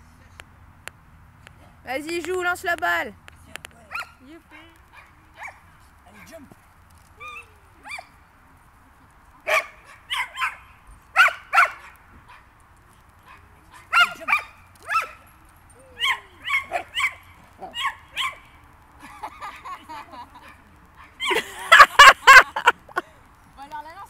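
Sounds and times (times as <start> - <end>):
dog yapping: 9.5 - 12.5, 13.3 - 15.2, 15.9 - 18.5.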